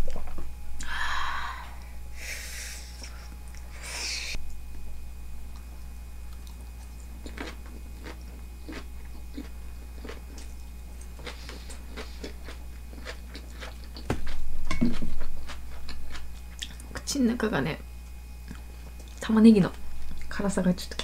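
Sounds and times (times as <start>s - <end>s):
crunchy chewing: 6.3s - 17.0s.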